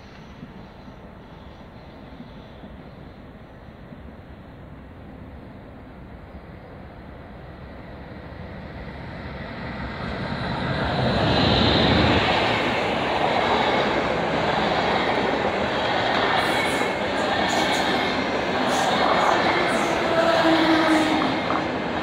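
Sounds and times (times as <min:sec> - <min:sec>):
train coaches rolling: 0:10.2 - 0:22.0.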